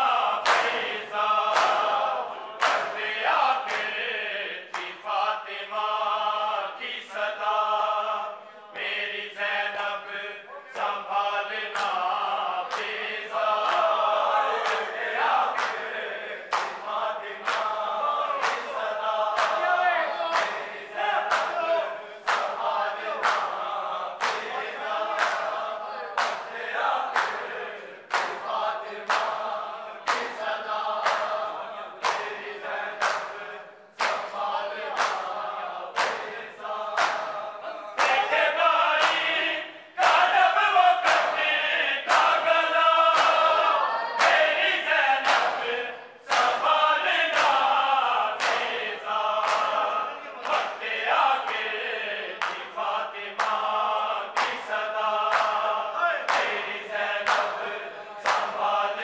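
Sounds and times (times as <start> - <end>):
crowd of men chanting: 0.0 - 59.0
hands slapping chests: 0.4 - 4.0, 4.7 - 5.1, 11.7 - 21.6, 22.2 - 23.6, 24.2 - 25.6, 26.2 - 37.4, 38.0 - 39.4, 40.0 - 40.4, 41.0 - 42.5, 43.1 - 43.6, 44.2 - 44.5, 45.2 - 45.7, 46.3 - 50.8, 52.4 - 52.7, 53.4 - 53.8, 54.4 - 55.7, 56.3 - 58.8.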